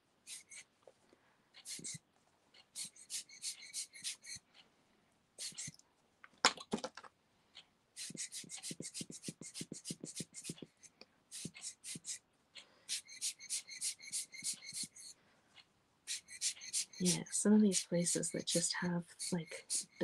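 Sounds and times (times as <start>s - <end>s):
hand air pump puffs: 0.3s - 0.6s, 1.6s - 2.0s, 2.8s - 4.4s, 5.4s - 5.8s, 8.0s - 12.2s, 12.9s - 15.1s, 16.1s - 20.0s.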